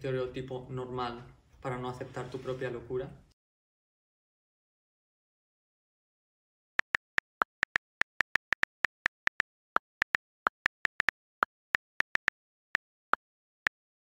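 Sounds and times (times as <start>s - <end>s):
phone keyboard clicks: 6.8s - 14.0s.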